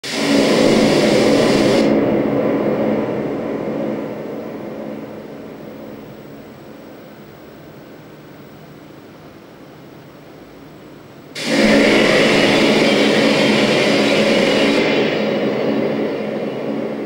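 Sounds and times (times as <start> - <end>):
electronic noise music: 0.0 - 6.9, 11.4 - 17.0
low drone: 0.0 - 7.2, 11.4 - 17.0.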